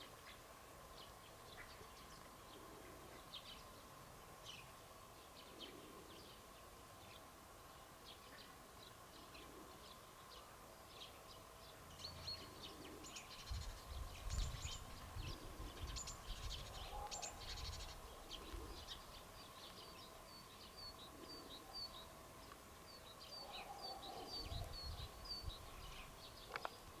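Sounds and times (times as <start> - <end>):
sparrows chirping: 0.0 - 27.0.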